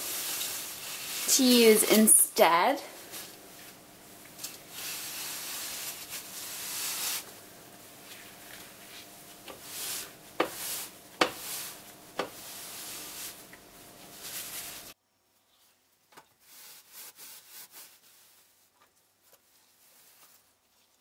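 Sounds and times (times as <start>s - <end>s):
cloth scrubbing glass: 8.1s - 15.0s.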